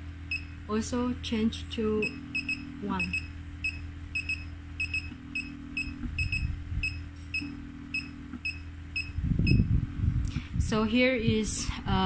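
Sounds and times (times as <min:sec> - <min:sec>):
low rumbling noise: 0:00.0 - 0:12.0
vacuum pump hum: 0:00.0 - 0:12.0
tone switching on and off: 0:00.3 - 0:00.6, 0:02.0 - 0:09.7
short high beeps: 0:02.0 - 0:09.6.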